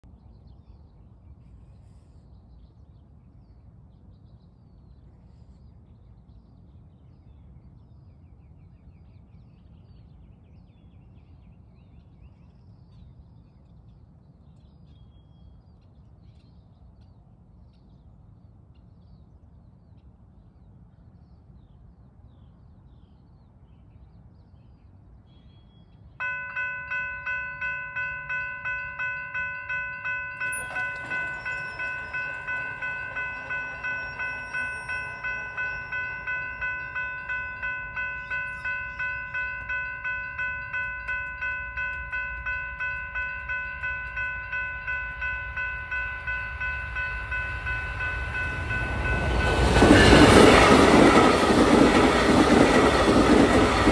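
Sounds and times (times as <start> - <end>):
birds chirping: 26.2 - 53.9
railroad crossing bell ringing: 26.2 - 53.9.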